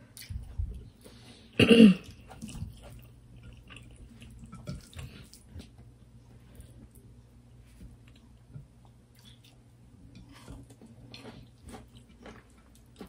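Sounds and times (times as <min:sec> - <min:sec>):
chewing and mouth clicks: 0:02.0 - 0:05.8, 0:08.0 - 0:13.0.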